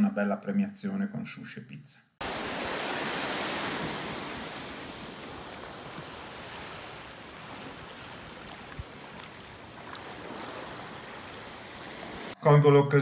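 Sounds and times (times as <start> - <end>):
waves washing onto beach: 2.2 - 12.4.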